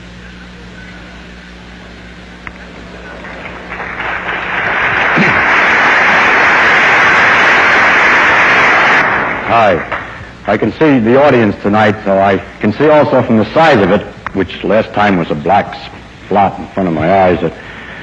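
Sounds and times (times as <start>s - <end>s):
low recording hum: 0.0s - 18.0s
audience applause: 2.6s - 10.2s.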